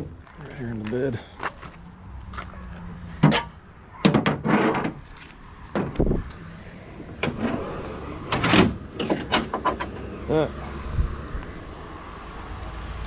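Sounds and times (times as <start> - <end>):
vehicle engine rumble: 0.0 - 13.0
knocks and scrapes of handling: 3.2 - 6.2.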